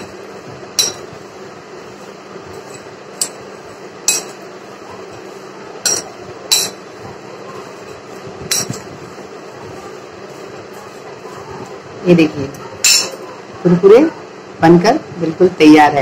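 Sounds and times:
metal spoon clinking on glass bowl: 0.7 - 1.2, 2.6 - 4.4, 5.8 - 6.9, 7.7 - 8.9, 12.8 - 13.3.

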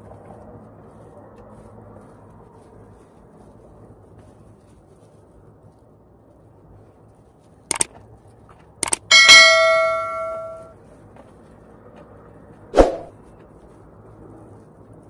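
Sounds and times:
bright bell ding: 8.8 - 10.7.

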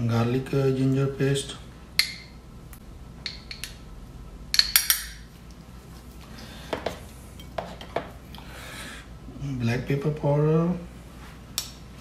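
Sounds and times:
metal spoon clinking against dishes: 4.6 - 5.2.

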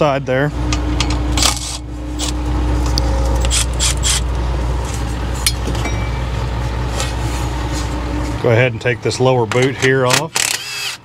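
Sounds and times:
steady low hum: 0.0 - 11.0
metal pipe scraping and clinking: 4.8 - 8.0.

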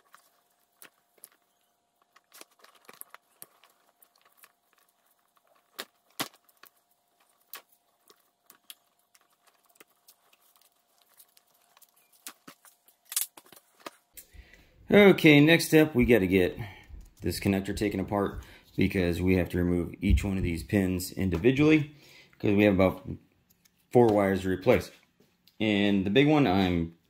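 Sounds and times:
wire bundles rustling: 0.0 - 14.4.

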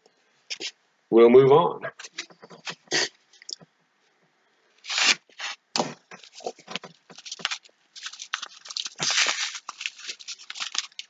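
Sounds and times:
paper crinkling: 4.8 - 11.0
paper envelope tearing: 4.8 - 11.0.

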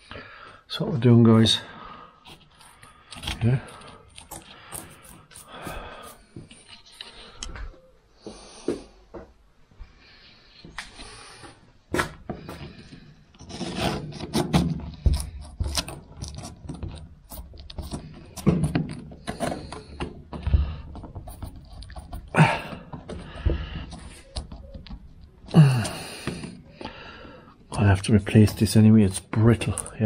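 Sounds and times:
handling scrapes and clicks: 2.2 - 7.6, 12.5 - 26.6
dull thumps: 17.8 - 25.1.

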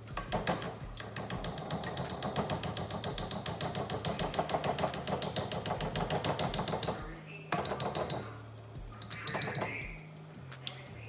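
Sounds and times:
gas stove igniter clicking: 0.0 - 10.9
low steady hum: 5.7 - 11.0.

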